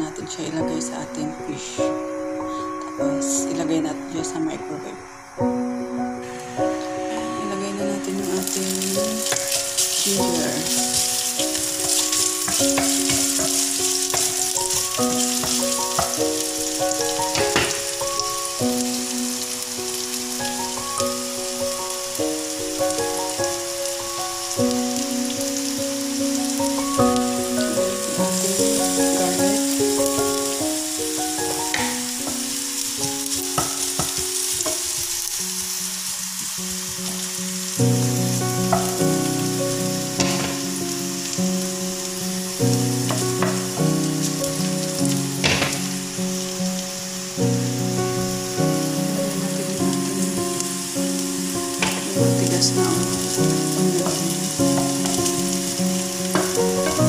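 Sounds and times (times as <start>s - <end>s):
ginger sizzling in hot oil: 0.0s - 57.0s
instrumental background music: 0.0s - 57.0s
spatula scraping frying pan: 9.3s - 16.2s.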